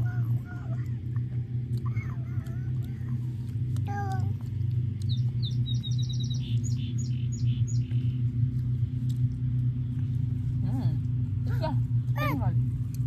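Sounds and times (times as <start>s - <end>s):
low steady hum: 0.0s - 13.0s
songbird chirping: 4.9s - 8.6s.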